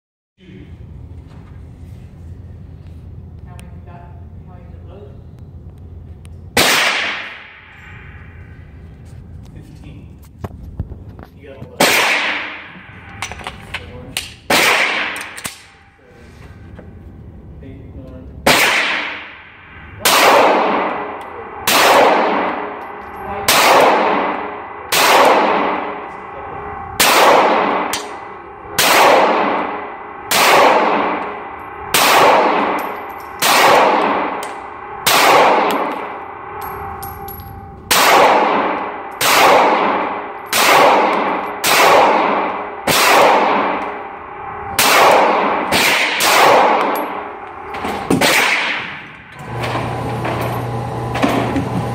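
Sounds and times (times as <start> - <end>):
pistol shots echoing indoors: 6.5 - 8.4, 11.8 - 15.9, 18.4 - 26.3, 27.0 - 49.4.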